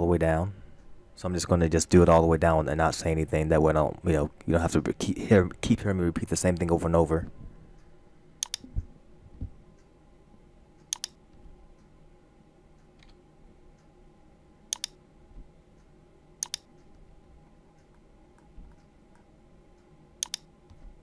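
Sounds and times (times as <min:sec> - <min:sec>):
faint steady hum: 0:00.0 - 0:21.0
mouse clicks: 0:08.4 - 0:08.7, 0:10.8 - 0:11.2, 0:14.7 - 0:15.0, 0:16.4 - 0:16.7, 0:20.2 - 0:20.8.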